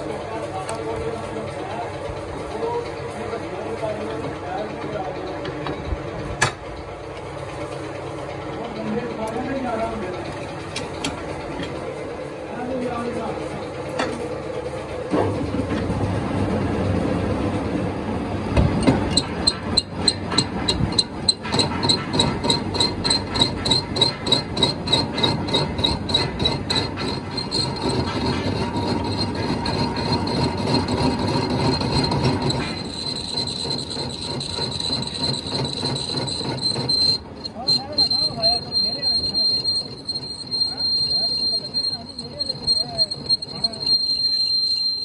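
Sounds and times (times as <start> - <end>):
machine high whine: 8.2 - 45.0
metalworking machine ticking: 18.8 - 45.0.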